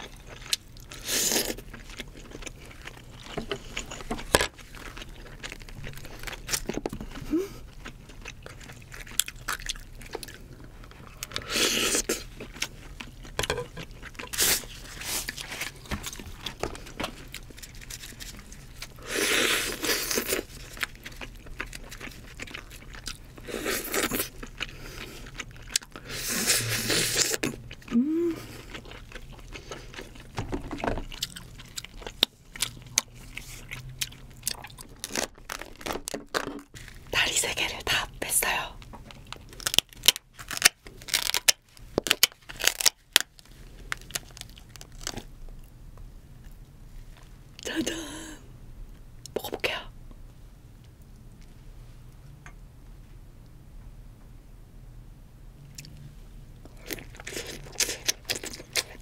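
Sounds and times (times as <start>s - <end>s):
crab shell crunching and scraping: 0.0s - 26.0s, 28.6s - 45.3s, 56.6s - 59.0s
chewing and biting: 0.0s - 37.1s, 56.6s - 59.0s.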